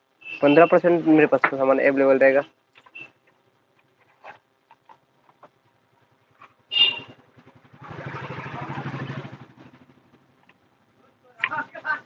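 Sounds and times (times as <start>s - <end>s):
rough engine rumble: 7.0s - 10.8s.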